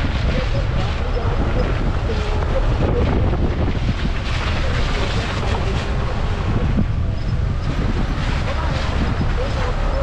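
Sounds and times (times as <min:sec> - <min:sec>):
car engine and tyre noise: 0:00.0 - 0:10.0
wind buffeting microphone: 0:00.0 - 0:10.0.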